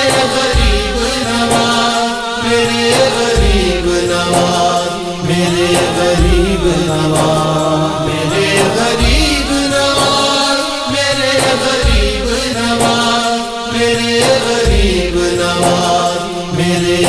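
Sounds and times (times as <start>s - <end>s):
deep beat: 0.0s - 2.1s, 2.7s - 10.6s, 11.2s - 13.3s, 14.0s - 17.0s
voices chanting: 0.0s - 17.0s.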